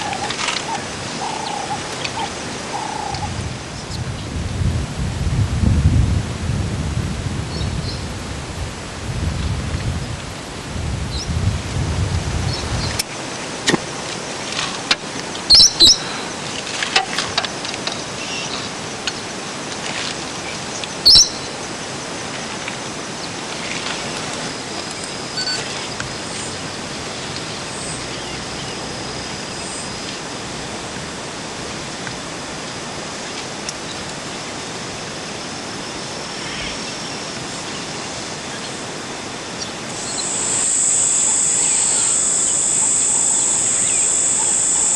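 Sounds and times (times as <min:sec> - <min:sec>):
low wind rumble: 0:00.0 - 0:44.9
steady hiss: 0:00.0 - 0:44.9
short high bird chirps: 0:15.5 - 0:16.2, 0:21.1 - 0:21.5.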